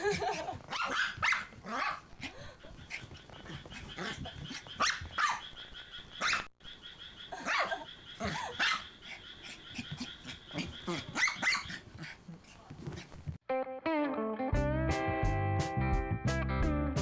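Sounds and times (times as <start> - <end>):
small dog barking: 0.1 - 2.1, 2.9 - 5.6, 6.2 - 6.5, 7.3 - 13.1.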